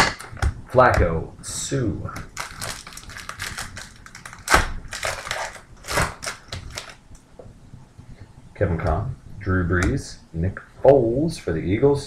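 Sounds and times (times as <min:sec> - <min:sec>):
foil wrapper crinkling and tearing: 0:02.3 - 0:07.0.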